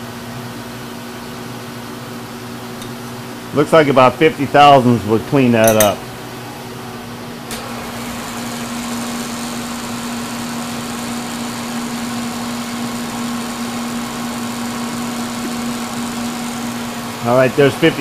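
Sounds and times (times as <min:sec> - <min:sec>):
milling machine humming: 0:05.6 - 0:18.0.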